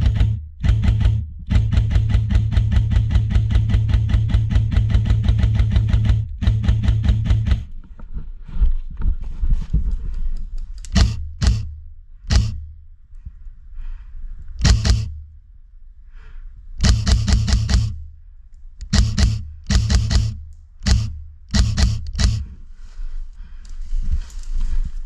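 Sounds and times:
airsoft rifle firing: 0:00.0 - 0:07.7, 0:10.9 - 0:12.7, 0:14.6 - 0:15.3, 0:16.8 - 0:18.2, 0:18.8 - 0:22.6
gearbox motor humming: 0:00.0 - 0:07.7, 0:18.8 - 0:22.5.

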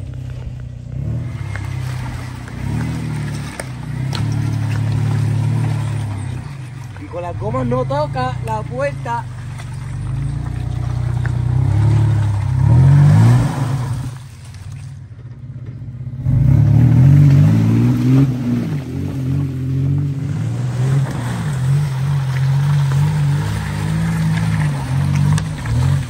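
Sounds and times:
car engine revving: 0:00.0 - 0:26.0.

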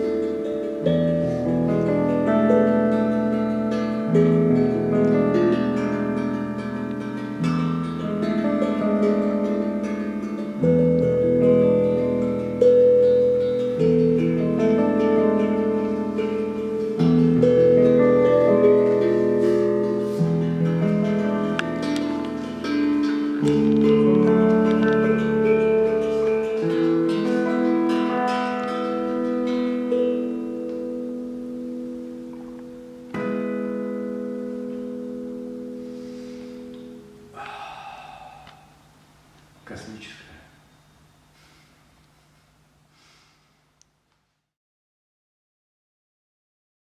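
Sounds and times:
steel hand drum struck by hand: 0:00.0 - 0:31.2
picked electric guitar: 0:00.0 - 0:38.9.

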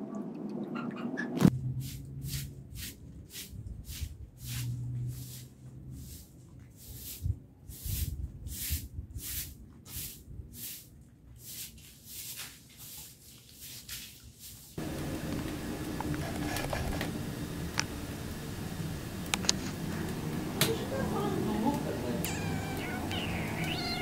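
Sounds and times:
broom sweeping stone paving: 0:01.8 - 0:14.8
wood fire crackling: 0:14.8 - 0:24.0.

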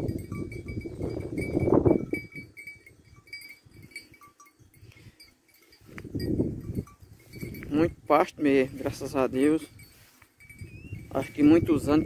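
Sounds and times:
livestock neck bell clinking: 0:00.0 - 0:12.0.

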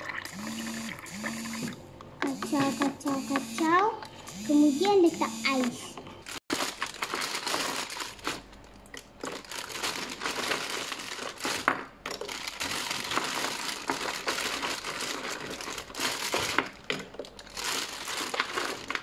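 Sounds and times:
plastic bag crinkling: 0:06.2 - 0:19.0.

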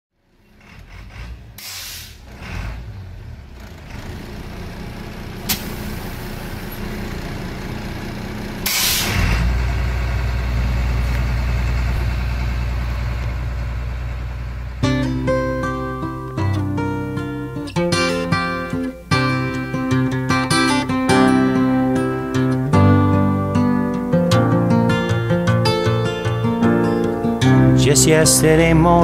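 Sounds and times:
bus engine running: 0:00.2 - 0:29.0
air brake hisses: 0:01.6 - 0:02.3, 0:05.4 - 0:06.9, 0:08.6 - 0:09.5.

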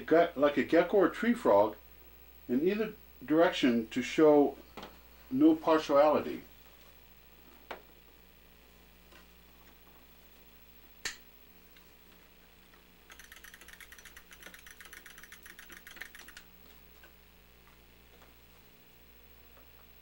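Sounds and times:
sharp click: 0:13.1 - 0:16.5.

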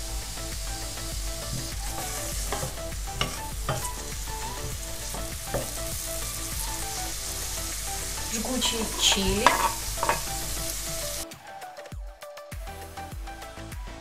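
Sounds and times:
onion and garlic sizzling in oil: 0:00.0 - 0:11.2
spatula knocking on metal: 0:01.5 - 0:06.1, 0:08.6 - 0:10.6
wooden spatula scraping pot: 0:01.5 - 0:11.2.

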